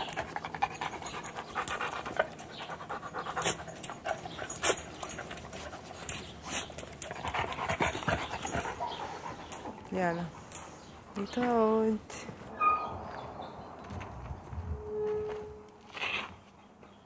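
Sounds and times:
dog panting up close: 0:00.0 - 0:11.3.

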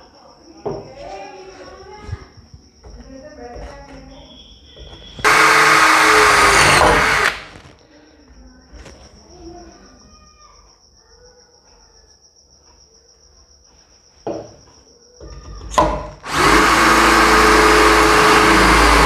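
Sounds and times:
cordless drill boring into metal pipe: 0:05.2 - 0:07.6, 0:16.2 - 0:19.0
faint handling sounds: 0:07.5 - 0:09.8.

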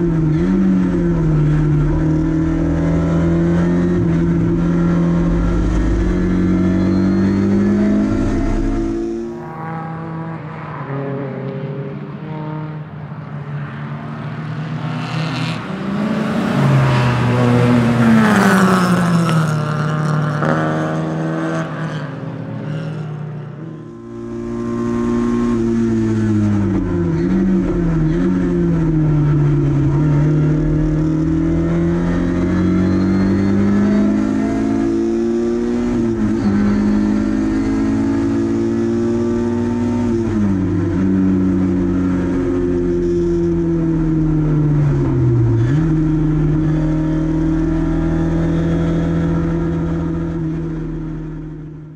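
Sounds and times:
race car engine revving: 0:00.0 - 0:12.9, 0:23.9 - 0:51.8
race cars passing trackside: 0:00.0 - 0:51.9.

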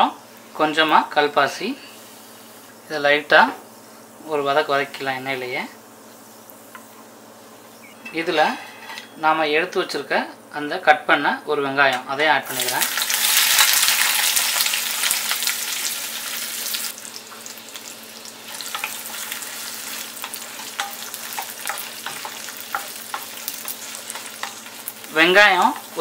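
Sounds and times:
onion sizzling in hot oil: 0:00.0 - 0:07.8, 0:12.1 - 0:26.0.

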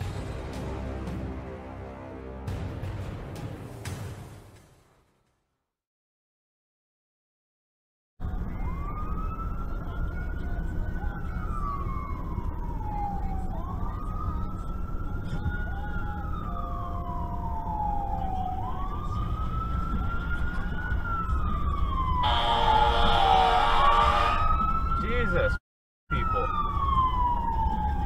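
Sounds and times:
car engine and road rumble: 0:08.2 - 0:23.0
fire truck siren wailing: 0:08.2 - 0:28.0
loud blaring horn: 0:22.2 - 0:24.6.

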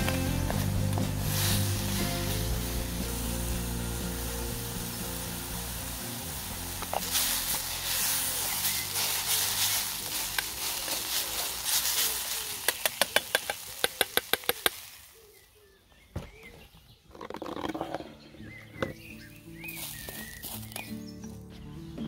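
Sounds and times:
rice sizzling in a pan: 0:00.0 - 0:15.6, 0:19.7 - 0:20.8.

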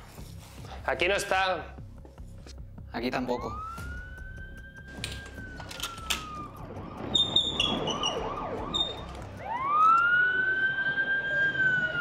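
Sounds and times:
siren wailing: 0:03.3 - 0:12.0
siren yelping warble: 0:03.4 - 0:12.0.

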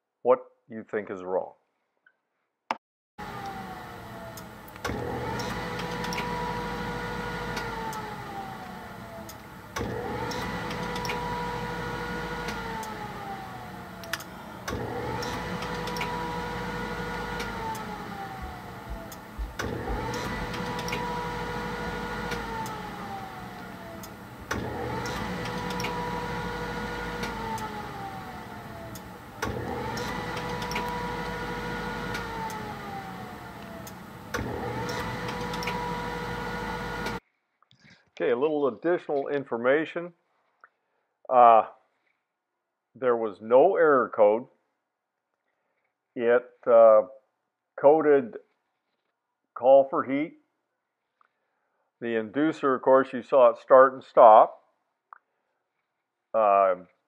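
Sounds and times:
motor humming and winding down: 0:03.2 - 0:37.2
sharp clicks: 0:14.0 - 0:16.1.

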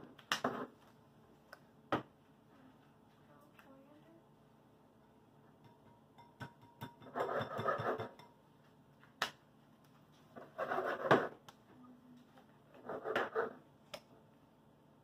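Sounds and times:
knife cutting on plastic board: 0:10.4 - 0:11.4, 0:12.8 - 0:13.6.

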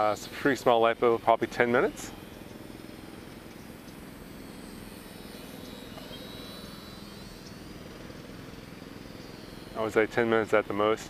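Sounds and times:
model airplane motor whine: 0:00.0 - 0:11.0.

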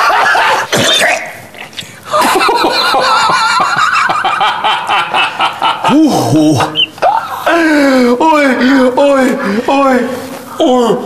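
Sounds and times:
loud laughing: 0:02.1 - 0:07.5.

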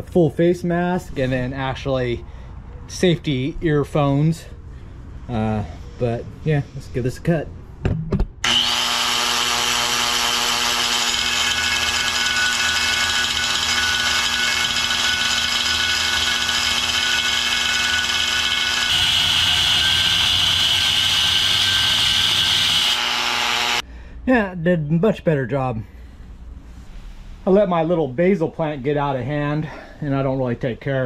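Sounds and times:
angle grinder cutting steel: 0:08.4 - 0:23.8.

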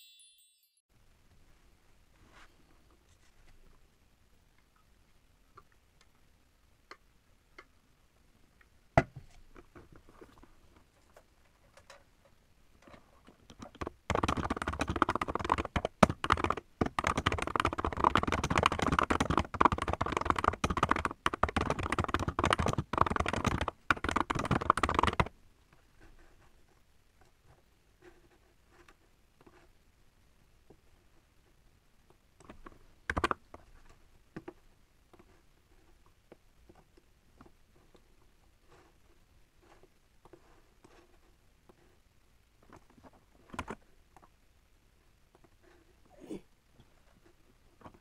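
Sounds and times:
typing on mechanical keyboard: 0:13.5 - 0:25.3, 0:33.1 - 0:33.4.

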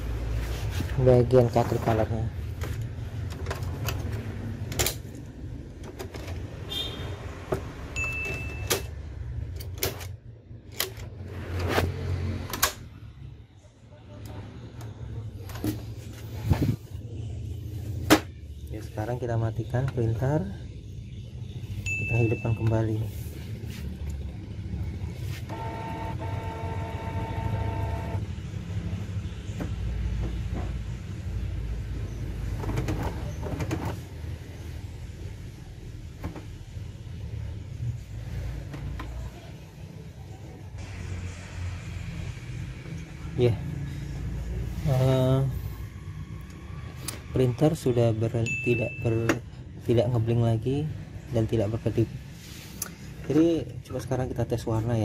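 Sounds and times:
high beep: 0:08.0 - 0:08.9
printer motor whine: 0:25.5 - 0:28.2
printer mechanical rumble: 0:25.5 - 0:28.3.

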